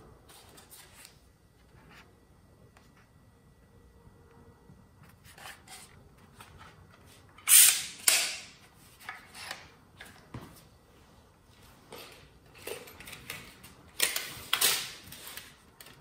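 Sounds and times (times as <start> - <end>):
nail gun shots: 7.5 - 8.5.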